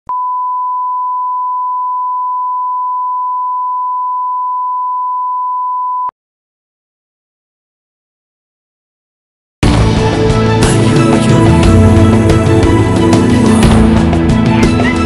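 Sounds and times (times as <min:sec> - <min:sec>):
pure test tone beep: 0:00.1 - 0:06.1.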